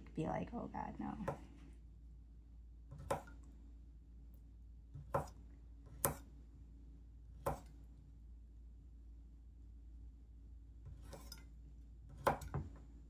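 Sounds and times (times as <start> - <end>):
knife slicing sausage: 5.0 - 6.4.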